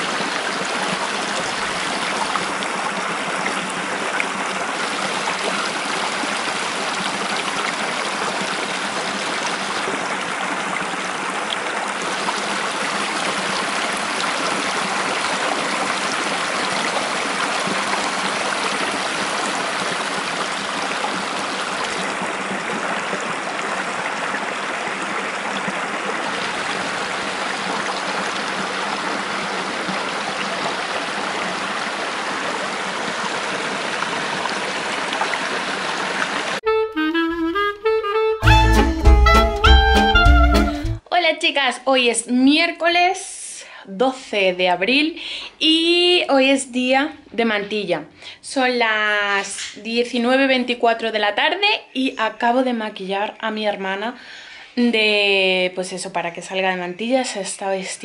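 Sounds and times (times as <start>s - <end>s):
stream running over rocks: 0.0s - 36.6s.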